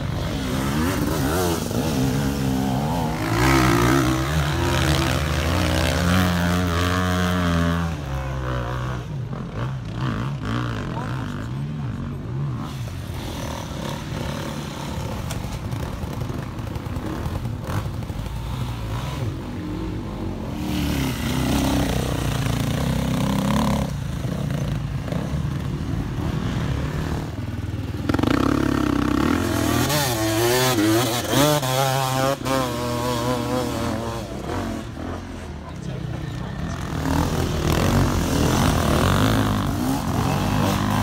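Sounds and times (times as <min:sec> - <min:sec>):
dirt bike engine revving: 0:00.0 - 0:35.6, 0:36.4 - 0:41.0.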